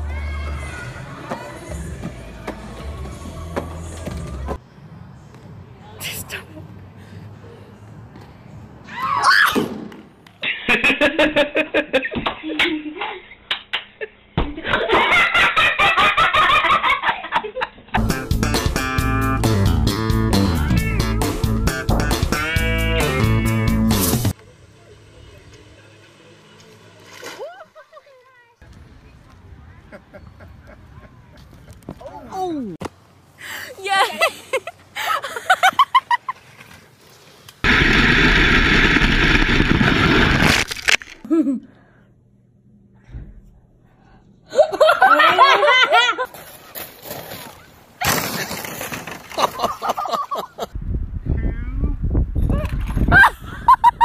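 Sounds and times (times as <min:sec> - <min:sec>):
music with guitar and bass: 0:18.0 - 0:24.3
wind buffeting microphone: 0:50.7 - 0:53.7.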